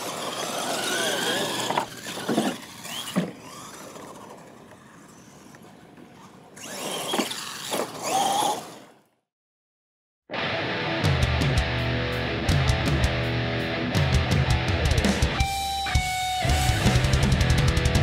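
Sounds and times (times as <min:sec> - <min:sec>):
toy truck motors whining: 0:00.0 - 0:09.1.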